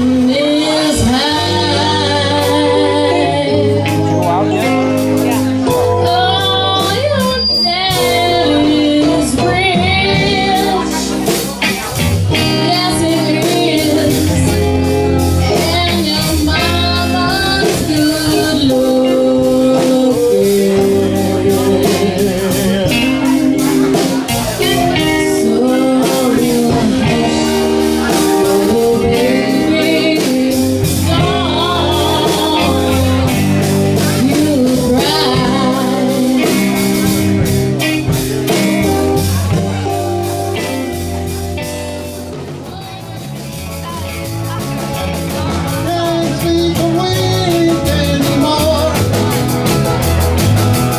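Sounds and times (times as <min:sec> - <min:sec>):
woman singing: 0:00.0 - 0:04.4, 0:05.8 - 0:11.3, 0:12.3 - 0:37.2
rock band playing: 0:00.0 - 0:50.9.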